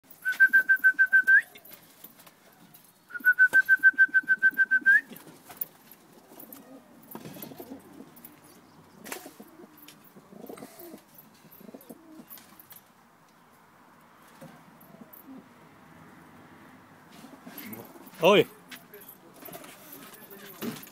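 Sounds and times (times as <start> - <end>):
pigeon cooing: 6.1 - 12.4, 14.5 - 15.6.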